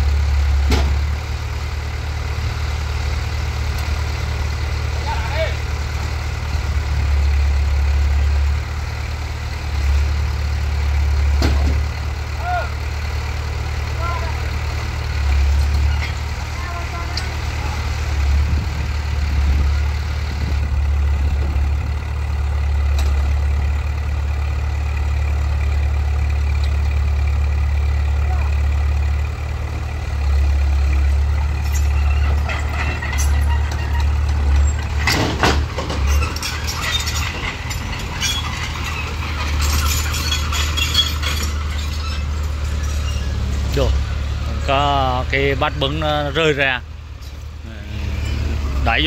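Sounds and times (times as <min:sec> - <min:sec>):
bulldozer diesel engine running: 0:00.0 - 0:49.0
metallic clanks and squeals: 0:15.5 - 0:17.8, 0:31.0 - 0:44.7, 0:47.2 - 0:49.0.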